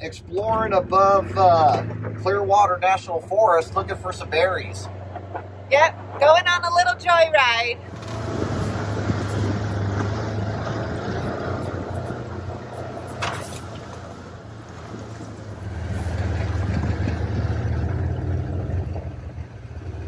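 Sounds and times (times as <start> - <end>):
vehicle engine running: 0.0 - 20.0.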